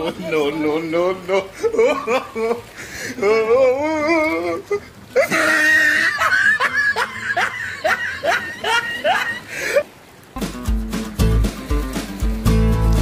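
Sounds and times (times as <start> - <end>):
person laughing: 1.3 - 9.9.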